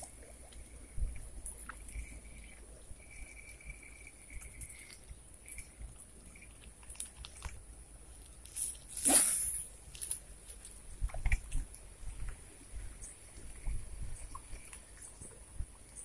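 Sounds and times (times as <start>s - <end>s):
reel clicks and rustles: 0.0s - 16.0s
steady high hiss: 7.7s - 10.6s
fishing rod swish: 9.0s - 9.7s.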